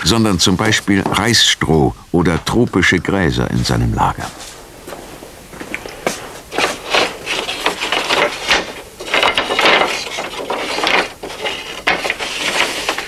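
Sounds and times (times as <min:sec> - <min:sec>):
wooden slats sliding: 0:06.0 - 0:13.0
wooden slats clattering: 0:06.1 - 0:13.0.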